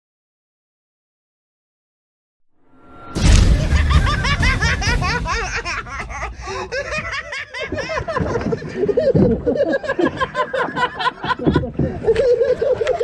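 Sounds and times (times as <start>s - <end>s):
low rumble: 2.7s - 8.2s
deeper laugh: 3.3s - 13.0s
people giggling: 3.6s - 13.0s.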